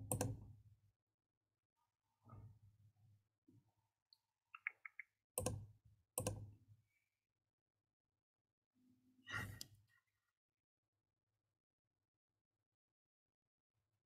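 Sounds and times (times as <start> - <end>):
computer mouse clicks: 4.6 - 5.6, 6.2 - 6.4.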